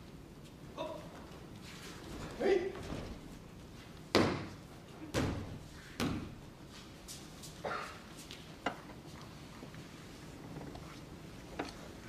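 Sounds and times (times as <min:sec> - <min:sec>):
bodies thudding on mats: 0:04.1 - 0:06.4.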